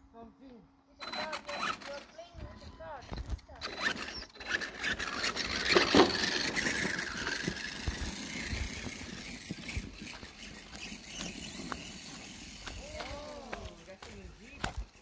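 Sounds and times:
toy truck motor whine: 1.0s - 13.4s
rough scraping burst: 3.6s - 13.2s.

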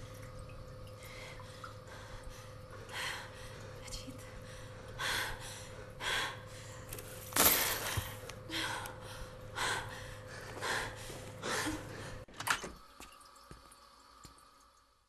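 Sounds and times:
steady low hum: 0.0s - 12.3s
people breathing heavily: 7.8s - 12.3s.

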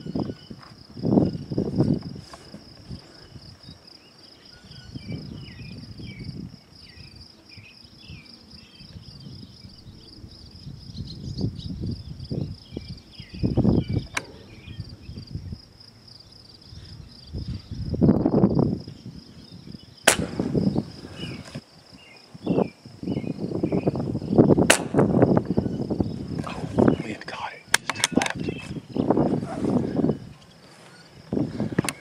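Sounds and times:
insects droning: 0.0s - 32.0s
wind buffeting microphone: 0.0s - 32.0s.

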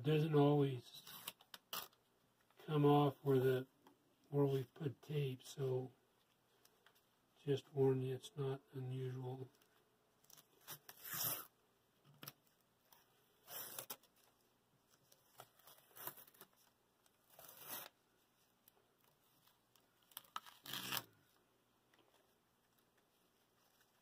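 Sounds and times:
paper tearing rips: 10.3s - 11.5s, 17.3s - 18.0s, 20.2s - 21.2s.

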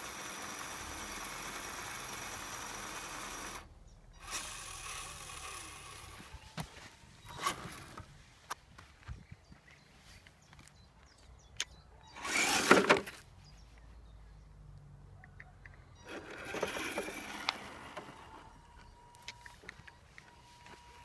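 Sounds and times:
small electric motor running: 0.0s - 6.5s, 12.2s - 13.0s, 16.1s - 18.8s.

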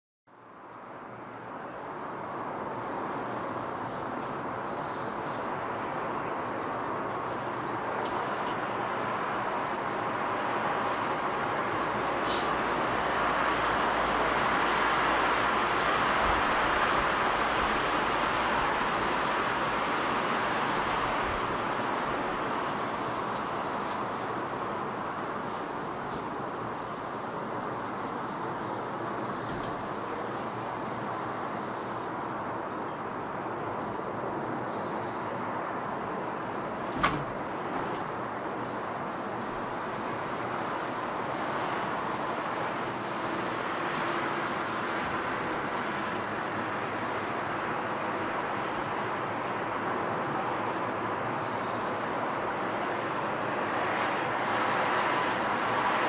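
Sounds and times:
songbirds chirping: 0.3s - 56.0s.

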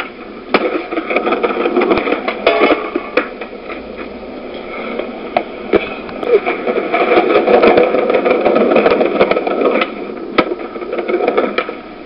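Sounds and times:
skateboard clacks: 0.0s - 12.0s
skateboard wheels rolling on concrete: 0.0s - 12.0s.

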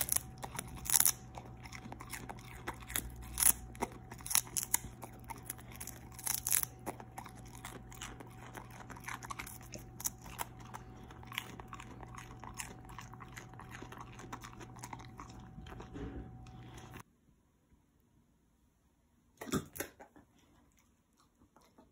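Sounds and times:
dog crunching vegetable stalk: 0.0s - 17.0s.

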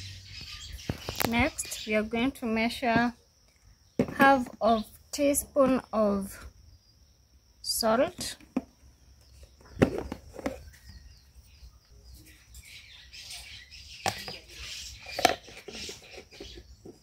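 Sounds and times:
high-pitched chirping: 0.0s - 2.6s.

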